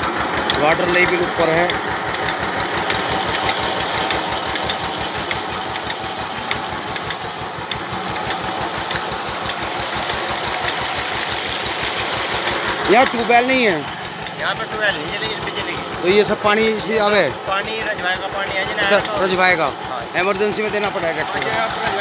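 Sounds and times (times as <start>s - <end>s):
diesel engine running: 0.0s - 22.0s
water gushing from pipe: 0.0s - 22.0s.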